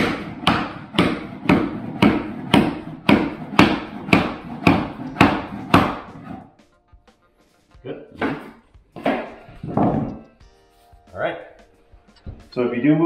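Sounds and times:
hammer knocking on wood plank: 0.0 - 6.4, 8.2 - 10.2.

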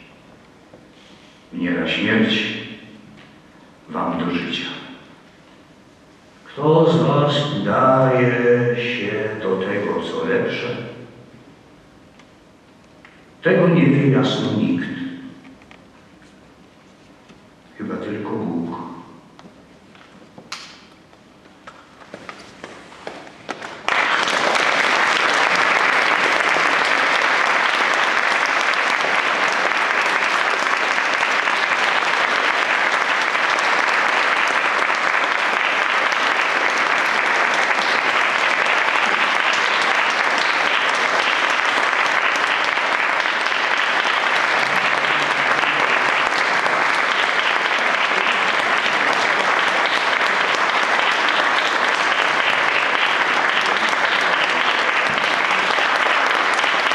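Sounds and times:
audience applauding: 23.0 - 56.9.

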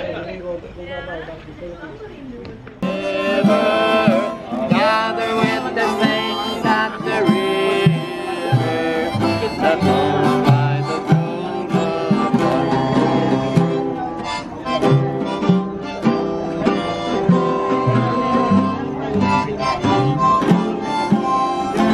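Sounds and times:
crowd chatter: 0.0 - 21.9
acoustic guitars country tune: 2.7 - 21.9.

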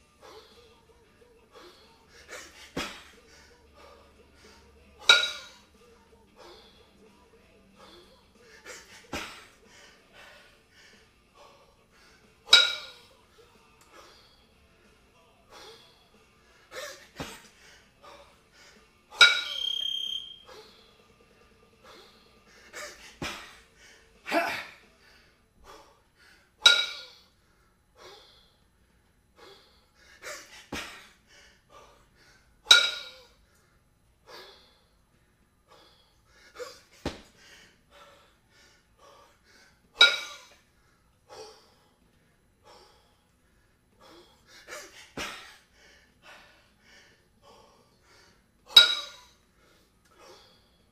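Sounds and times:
kettlebells clinking: 5.0 - 5.7, 12.5 - 13.1, 19.1 - 20.7, 26.6 - 27.2, 32.6 - 33.3, 39.9 - 40.6, 48.7 - 49.4
person breathing hard: 7.8 - 12.4, 15.5 - 18.9, 21.8 - 26.6, 27.2 - 32.6, 35.6 - 39.9, 40.6 - 48.5, 49.5 - 50.9.

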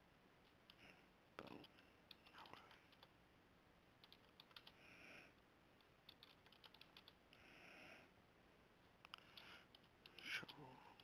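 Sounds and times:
keyboard typing: 1.4 - 3.1, 4.0 - 4.8, 5.8 - 7.2, 9.0 - 11.0.

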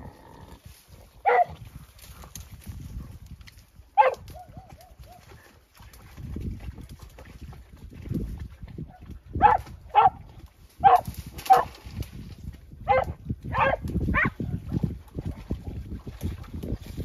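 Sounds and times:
rustle of dry grass and brush: 0.3 - 17.0
dog yelping barks: 1.2 - 1.5, 4.0 - 5.2, 9.4 - 10.2, 10.8 - 11.7, 12.9 - 14.3.

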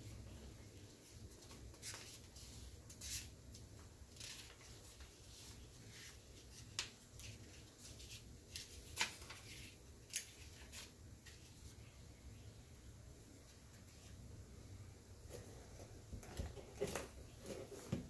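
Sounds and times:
plastic sheet rustling and crinkling: 0.8 - 11.8.

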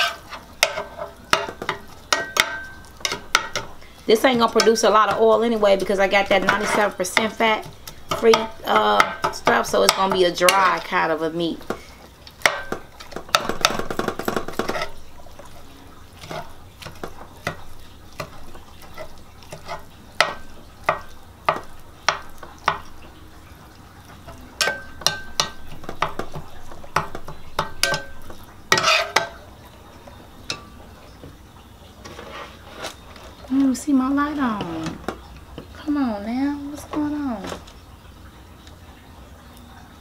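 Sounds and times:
utensil scraping a pan: 0.0 - 23.0, 24.1 - 29.4, 32.0 - 33.7
meat sizzling: 0.0 - 38.8.

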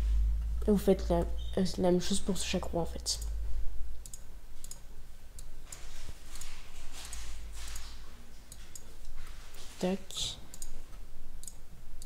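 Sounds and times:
computer mouse clicking: 4.0 - 4.8, 5.4 - 7.9, 8.5 - 9.6, 10.5 - 10.8, 11.4 - 11.6.

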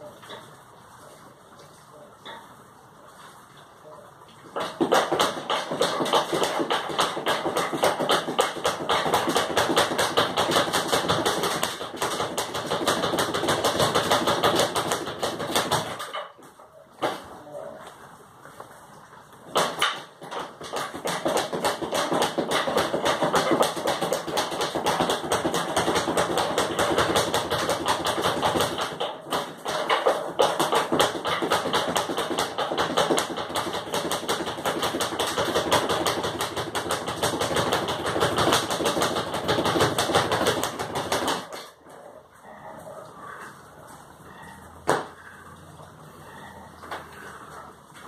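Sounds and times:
speed bag being punched: 4.6 - 16.2, 19.5 - 41.8.

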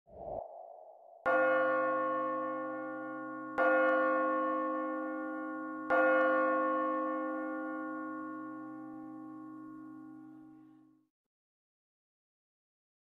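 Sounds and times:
church bell ringing: 1.2 - 10.9.

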